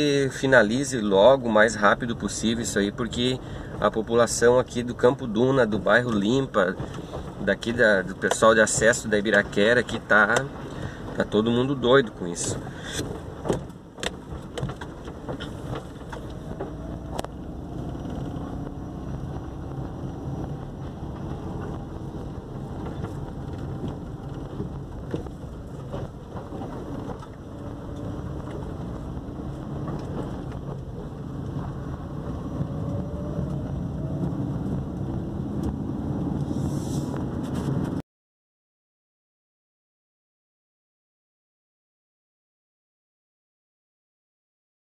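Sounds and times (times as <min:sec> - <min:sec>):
tyre noise on road: 0:00.0 - 0:38.0
knocks and rattles in car: 0:00.2 - 0:33.6
car engine running: 0:00.2 - 0:38.0.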